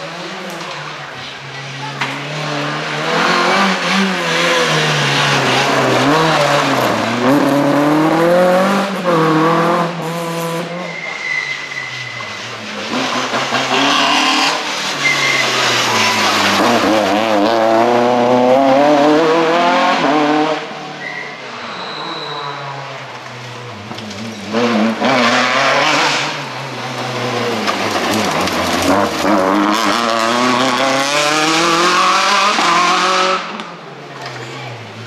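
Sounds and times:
rally car engines revving: 0.0s - 35.0s
tyre squeals: 10.7s - 12.7s, 13.5s - 17.1s, 21.0s - 22.9s.

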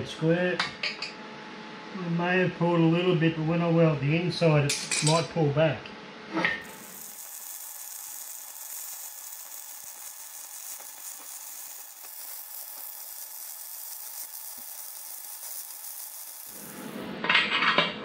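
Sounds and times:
welding arc crackling hiss: 6.6s - 17.1s.

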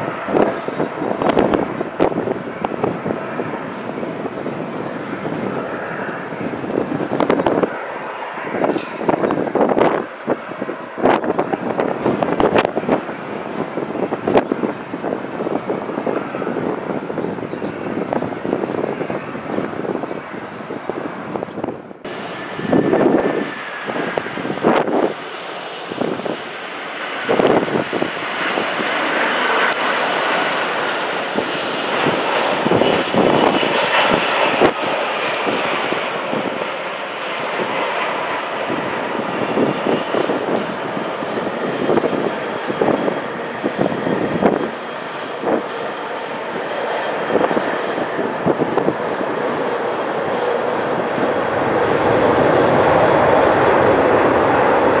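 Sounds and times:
jet engines rumble and whine: 0.0s - 55.0s.

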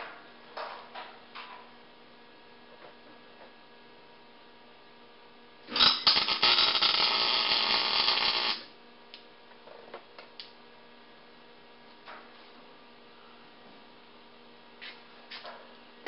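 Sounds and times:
steady electrical hum: 0.0s - 16.0s
welding arc buzzing: 5.6s - 8.8s.

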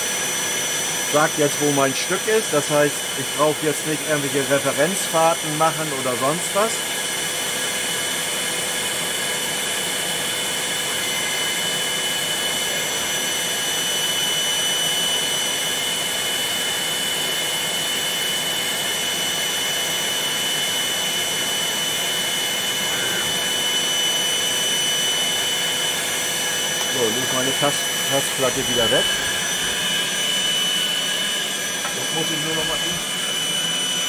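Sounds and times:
vacuum motor running with whine: 0.0s - 34.0s.

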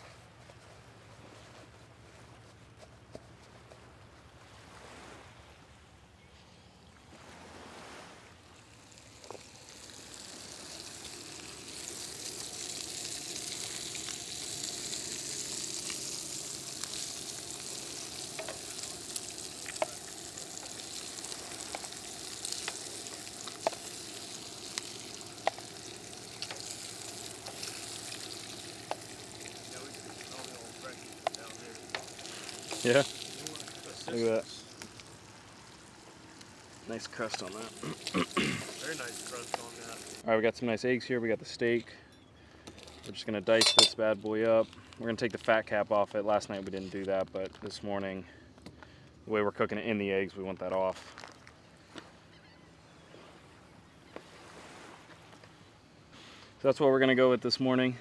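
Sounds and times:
meat sizzling on a griddle: 8.9s - 40.2s.

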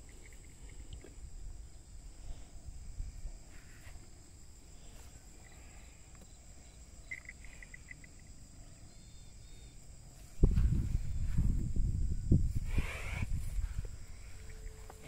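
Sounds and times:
crickets buzzing: 0.0s - 15.0s
rapid chirps: 5.0s - 9.8s.

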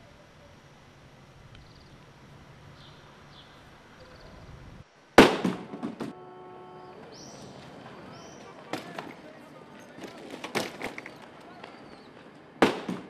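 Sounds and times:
high bird chirps: 2.7s - 4.6s, 6.8s - 8.6s
loud bang: 5.2s - 6.2s, 12.6s - 13.0s.

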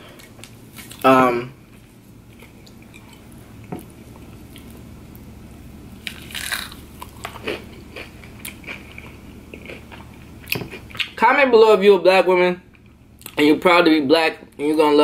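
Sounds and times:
chewing with crackly crunches: 0.1s - 1.1s, 1.7s - 5.3s, 6.0s - 11.2s.

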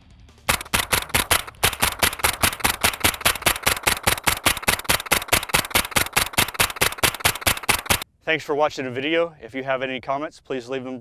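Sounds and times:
suppressed rifle firing rapidly: 0.5s - 8.0s.

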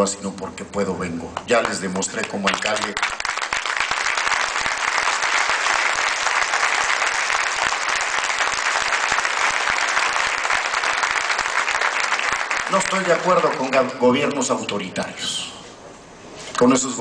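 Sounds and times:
crowd applauding: 1.5s - 14.0s.

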